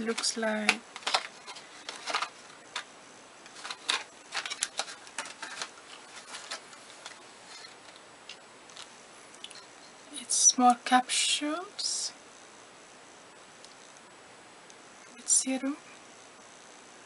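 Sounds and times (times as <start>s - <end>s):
cardboard packaging rustling: 0.1s - 8.1s.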